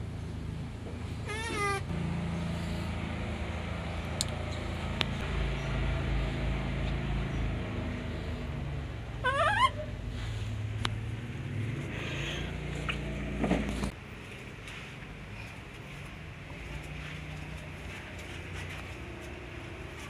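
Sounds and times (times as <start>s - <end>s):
baby monkey crying: 1.3s - 1.9s, 9.2s - 9.9s.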